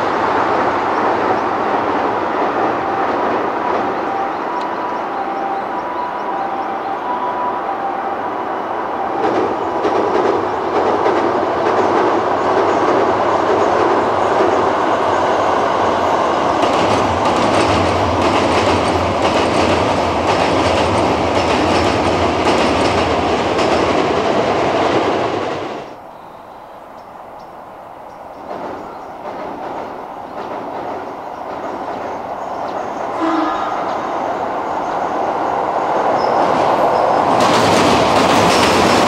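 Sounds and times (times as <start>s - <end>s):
train rumbling over bridge: 0.0s - 39.0s
wheel clacks over rail joints: 36.2s - 39.0s.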